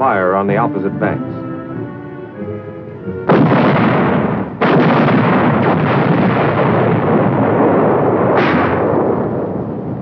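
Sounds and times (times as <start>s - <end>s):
shells bursting: 3.2s - 9.8s
rumble of explosions: 3.2s - 10.0s
artillery fire: 3.3s - 10.0s.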